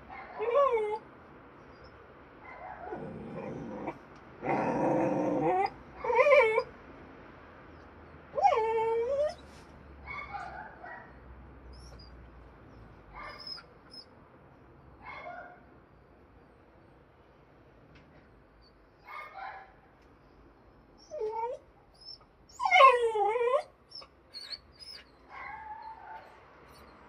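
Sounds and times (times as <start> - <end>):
dog whining and yelping: 0.2 - 1.0, 1.7 - 6.7, 8.3 - 10.7, 11.7 - 12.2, 13.1 - 14.1, 21.0 - 27.0.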